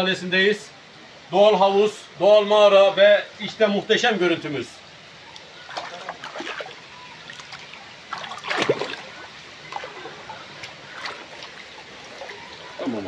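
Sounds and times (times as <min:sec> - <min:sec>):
waterfall splashing: 0:01.2 - 0:13.0.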